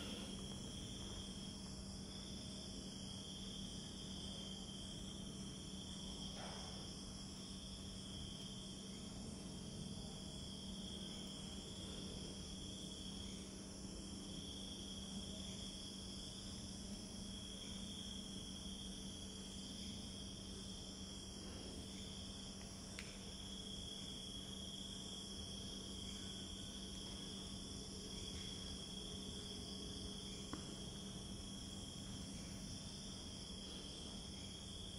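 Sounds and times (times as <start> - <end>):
low steady hum: 0.0 - 6.2
crickets chirping: 0.0 - 34.9.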